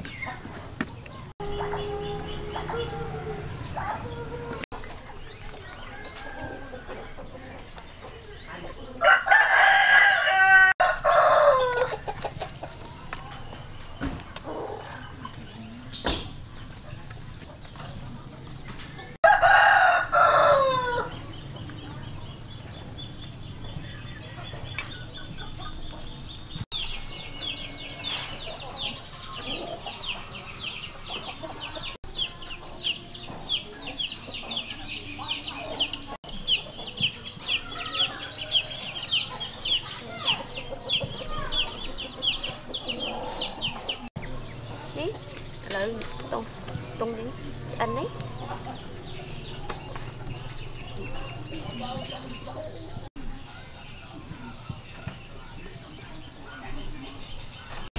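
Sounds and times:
rooster crowing: 1.4s - 4.6s, 5.8s - 7.1s, 9.0s - 12.0s, 19.2s - 21.2s.

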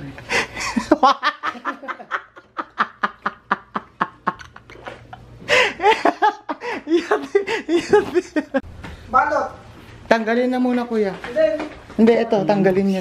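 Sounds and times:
man laughing: 0.3s - 8.6s.

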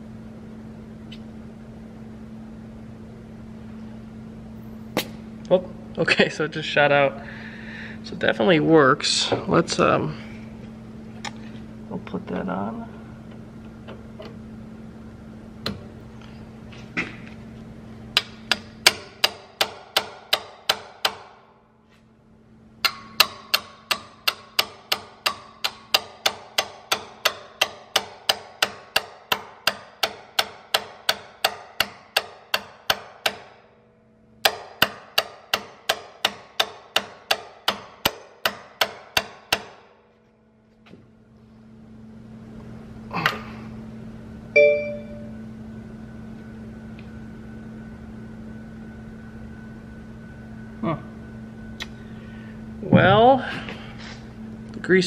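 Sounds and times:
hammer striking metal tool: 18.2s - 21.4s, 22.8s - 33.7s, 34.4s - 39.9s.

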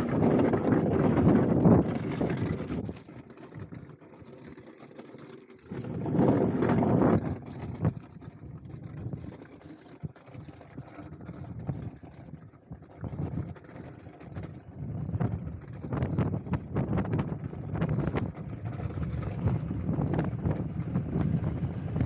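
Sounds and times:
ice skates on rough ice: 0.0s - 3.7s, 5.3s - 8.1s
wind buffeting microphone: 0.0s - 3.8s, 5.7s - 9.4s, 10.7s - 22.0s.

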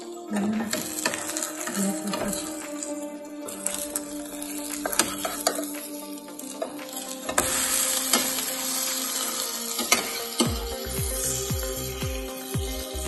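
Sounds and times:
background music: 0.0s - 13.0s
omelette sizzling in pan: 0.7s - 10.6s.

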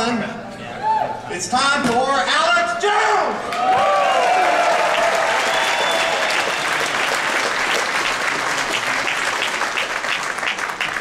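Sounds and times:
shouts and whoops: 3.0s - 6.6s
audience applauding: 3.5s - 11.0s.

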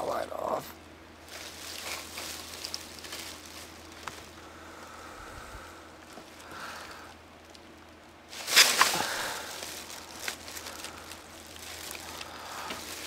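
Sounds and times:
loud rustling scrape: 1.3s - 3.8s, 8.3s - 13.0s.

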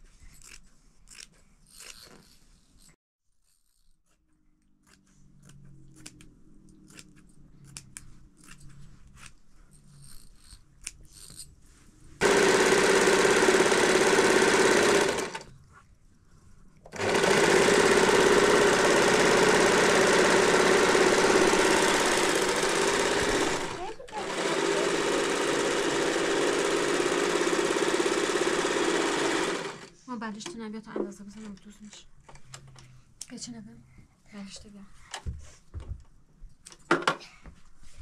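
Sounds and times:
sewing machine stitching: 12.2s - 15.5s, 16.9s - 30.0s.

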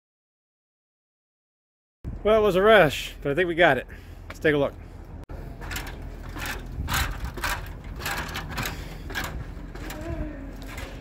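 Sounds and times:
footsteps climbing a ladder: 5.4s - 11.0s.

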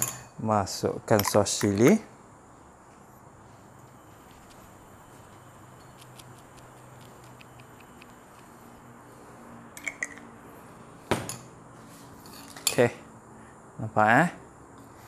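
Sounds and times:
bottle set down on table: 11.1s - 11.4s.

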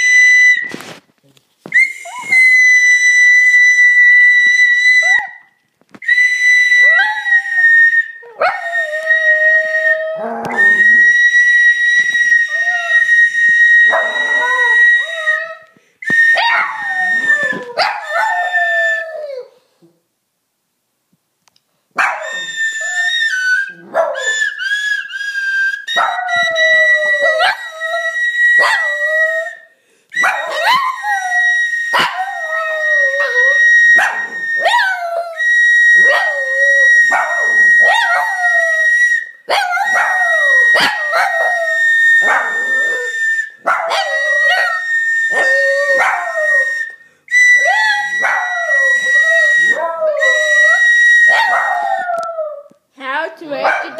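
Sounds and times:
recorder playing high notes: 0.0s - 1.0s, 6.0s - 17.8s, 22.2s - 52.3s
dog howling: 6.8s - 11.3s, 13.8s - 15.7s, 16.4s - 19.6s, 22.0s - 24.7s, 25.8s - 29.6s, 30.2s - 52.7s.

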